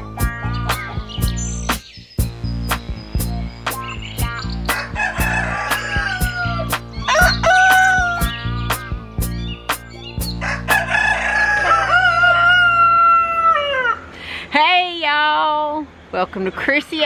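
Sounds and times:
music with steady beat: 0:00.0 - 0:10.4
rooster crowing: 0:04.7 - 0:08.4, 0:10.4 - 0:14.1.

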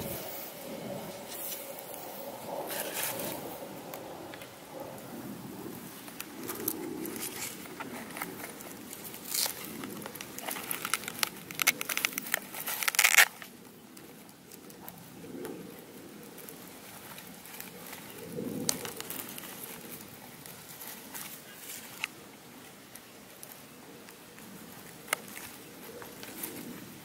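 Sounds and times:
cardboard crinkling and clicking: 0:06.1 - 0:15.6.

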